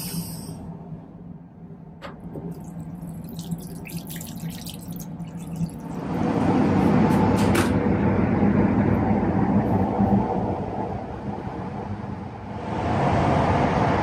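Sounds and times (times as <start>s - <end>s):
train rumble: 0.0s - 2.8s, 5.9s - 14.0s
tap water splashing over hand: 2.4s - 5.9s.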